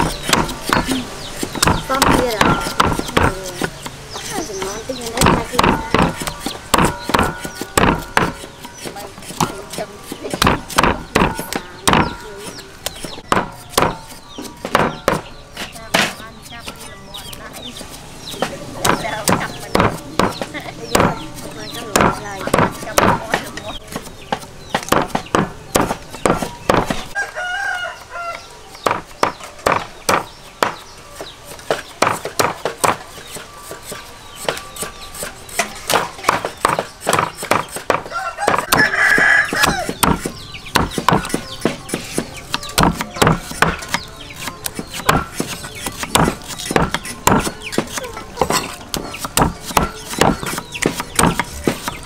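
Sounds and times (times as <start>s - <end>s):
cleaver chopping on wooden block: 0.0s - 27.2s, 28.3s - 52.0s
rooster crowing: 27.2s - 28.7s, 38.0s - 40.0s.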